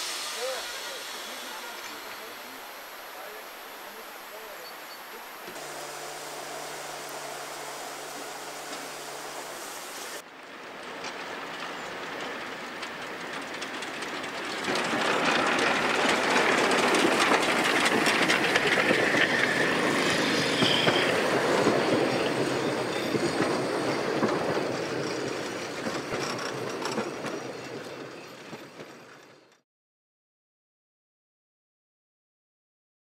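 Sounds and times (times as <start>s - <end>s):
train carriages rumbling: 5.5s - 29.6s
wheels clicking over rail joints: 5.5s - 29.6s
wheel squeal: 17.8s - 29.5s.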